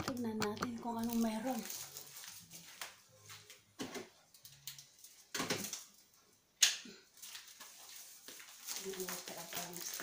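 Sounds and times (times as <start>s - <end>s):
objects clacking: 0.0s - 1.9s.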